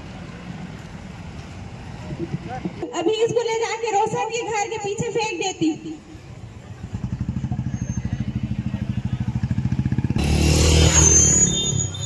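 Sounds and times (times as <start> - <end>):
street sound: 0.0 - 12.0
motorcycle engine running: 6.4 - 10.6
loud noisy engine: 6.6 - 12.0.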